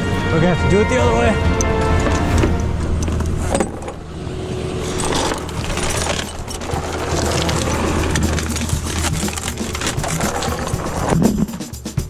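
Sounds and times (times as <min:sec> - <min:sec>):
truck engine running: 0:01.7 - 0:11.9
metal chains clinking: 0:04.8 - 0:11.8.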